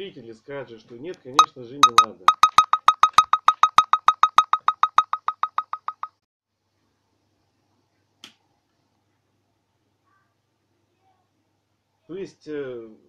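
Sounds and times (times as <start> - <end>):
rapid electronic beeps: 1.4 - 6.2.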